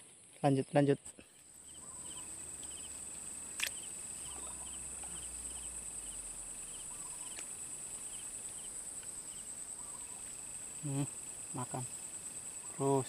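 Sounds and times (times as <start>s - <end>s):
insect chirping in trills: 0.0s - 13.0s
insects droning: 0.0s - 13.0s
sharp click: 3.6s - 3.9s.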